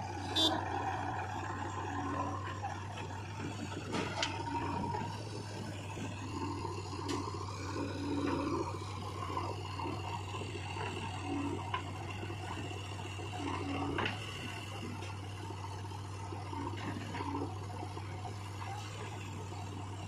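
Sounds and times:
diesel engine running: 0.0 - 20.0.

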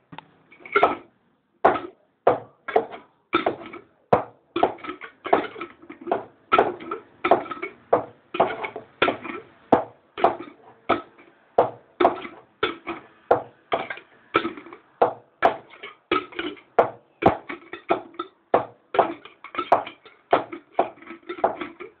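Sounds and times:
glass jar and lid clinking: 18.9 - 22.0.

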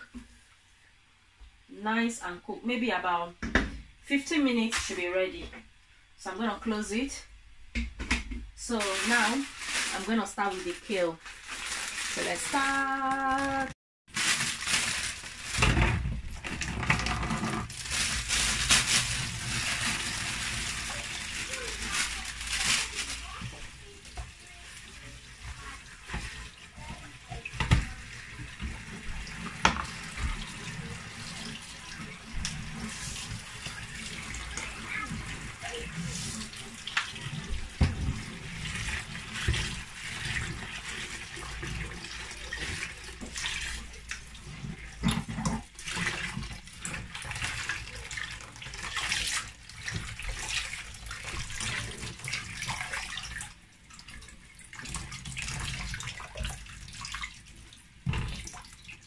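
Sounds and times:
tap water running into tub: 7.7 - 59.0
hands splashing leaves in water: 17.7 - 27.4.

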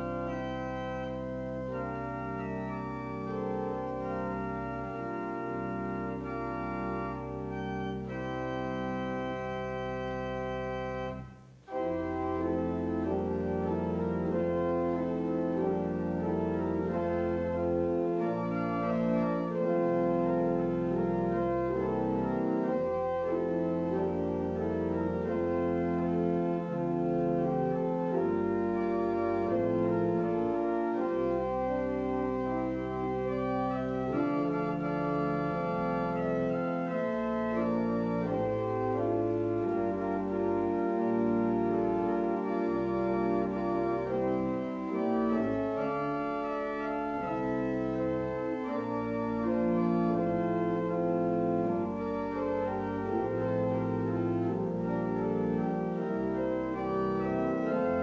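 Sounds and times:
church organ chords: 0.0 - 58.0.

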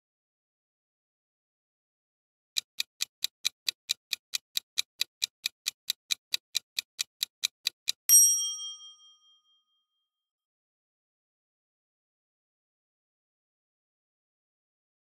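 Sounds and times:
clock-like ticking: 2.6 - 8.4
bright bell ding: 8.1 - 9.9.

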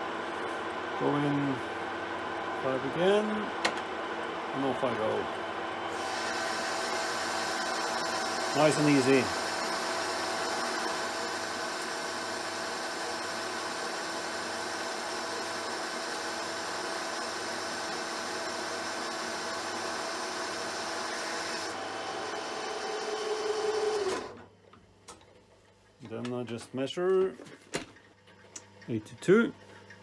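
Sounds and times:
lathe gear whine: 1.0 - 24.4.

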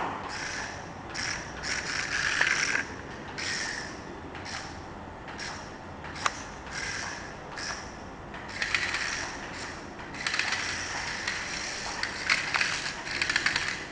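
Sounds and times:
toy car motor whirring: 0.3 - 3.9, 8.5 - 13.9.

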